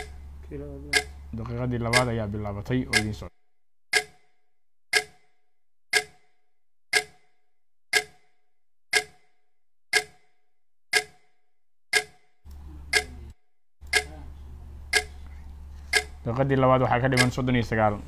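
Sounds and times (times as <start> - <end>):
clock ticking: 0.0 - 3.3, 3.9 - 4.3, 4.9 - 5.3, 5.9 - 14.2, 14.9 - 18.0
faint low hum: 12.5 - 18.0.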